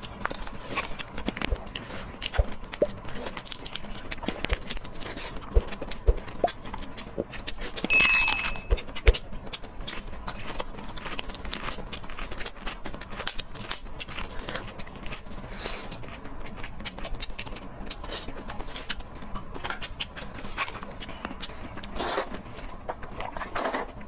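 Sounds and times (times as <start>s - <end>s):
thin steady beep: 7.9s - 8.7s.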